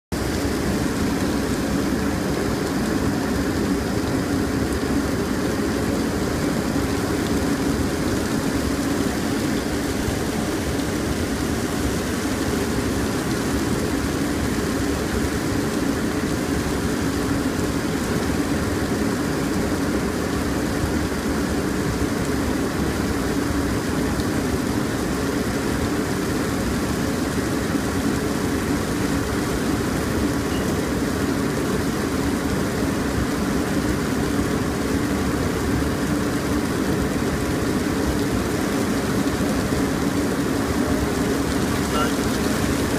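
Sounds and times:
jet cockpit airflow and engine noise: 0:00.1 - 0:42.9
rain on windshield: 0:00.2 - 0:42.9.

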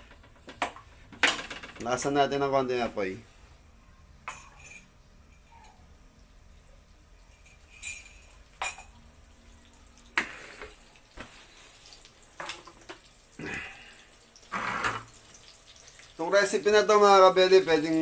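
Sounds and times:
butter sizzling in wok: 0:08.3 - 0:18.0.

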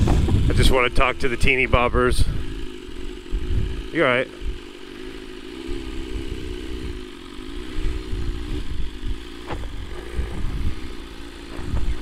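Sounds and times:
wind rumbling on microphone: 0:00.0 - 0:00.8, 0:03.3 - 0:04.6, 0:07.8 - 0:12.0
motorcycle engine at low revs: 0:00.0 - 0:12.0.

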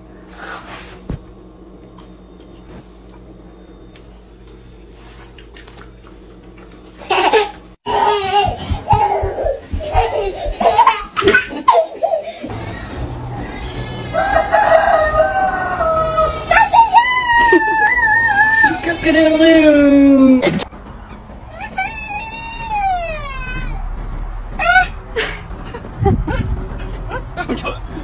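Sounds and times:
rooster crowing: 0:13.4 - 0:16.5
people laughing and squealing: 0:15.8 - 0:19.7.

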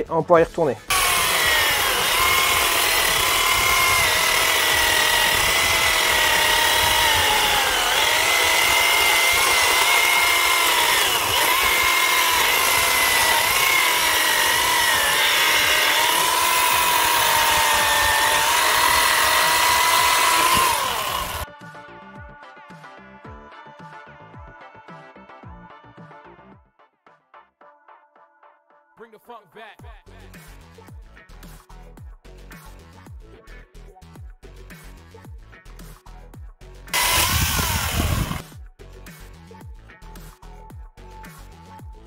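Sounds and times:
battery chainsaw cutting log: 0:00.9 - 0:21.4, 0:36.9 - 0:38.5.

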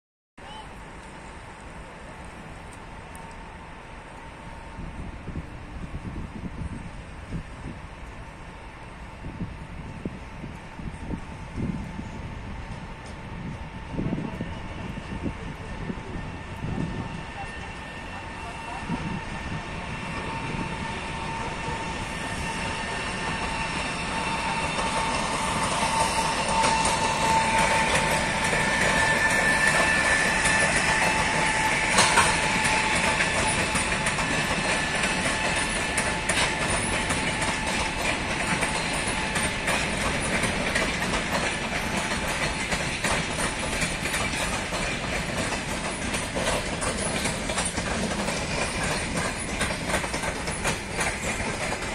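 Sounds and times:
train wheels clicking over rail joints: 0:16.2 - 0:51.9.

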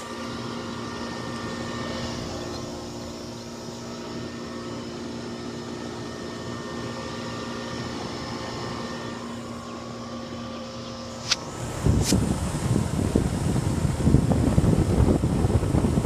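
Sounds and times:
fan air buffeting microphone: 0:00.0 - 0:16.0
heat pump humming: 0:00.0 - 0:16.0
sharp click: 0:11.2 - 0:12.2.

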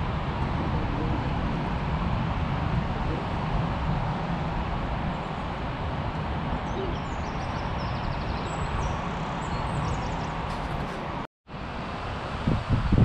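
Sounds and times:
wind on microphone: 0:00.0 - 0:13.0
small birds chirping: 0:06.6 - 0:11.1.

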